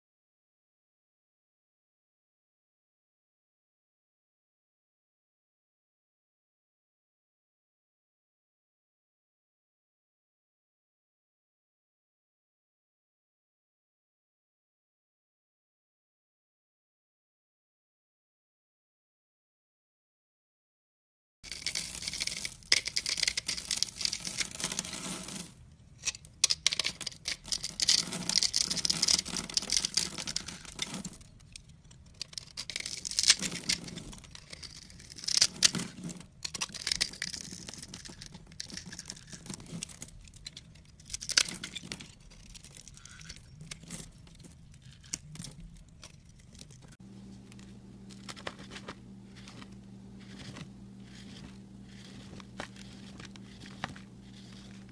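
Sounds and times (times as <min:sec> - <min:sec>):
knife scraping crumbly soap: 0:21.5 - 0:54.9
faint steady hum: 0:43.1 - 0:54.9.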